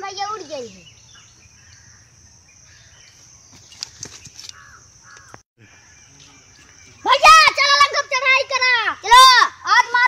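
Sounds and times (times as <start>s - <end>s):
outdoor background hiss: 0.0s - 10.0s
crow cawing: 4.5s - 5.9s.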